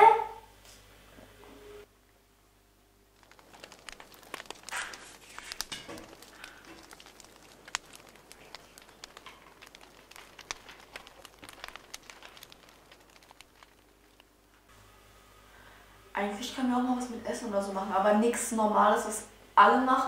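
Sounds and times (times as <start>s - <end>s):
paper burning crackle: 3.0s - 14.7s.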